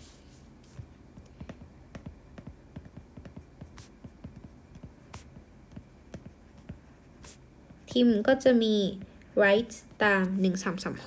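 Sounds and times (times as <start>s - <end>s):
stylus tapping on glass screen: 1.2s - 6.8s.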